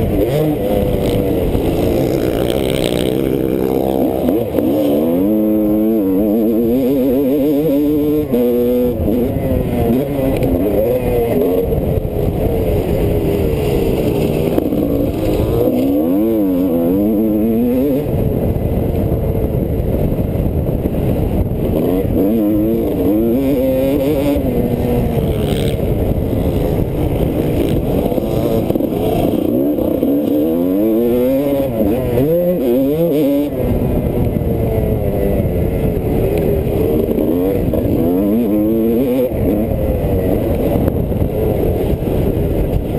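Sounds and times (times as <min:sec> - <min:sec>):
motocross bike engine revving: 0:00.0 - 0:42.9.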